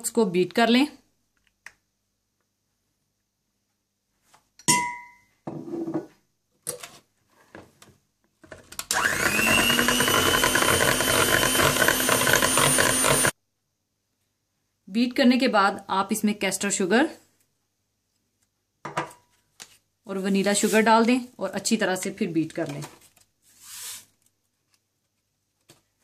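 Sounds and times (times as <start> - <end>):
electric hand mixer running: 8.9 - 13.4.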